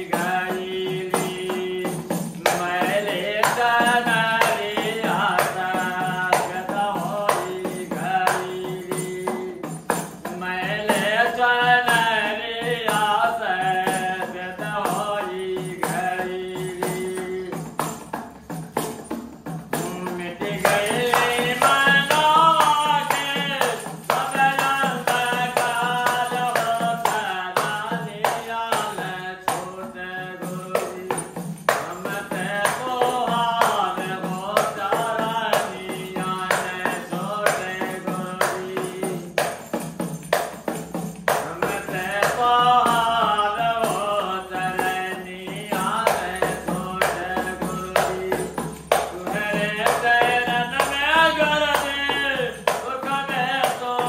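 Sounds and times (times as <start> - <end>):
man singing devotional song: 0.0 - 54.0
tambourine jingles: 0.0 - 54.0.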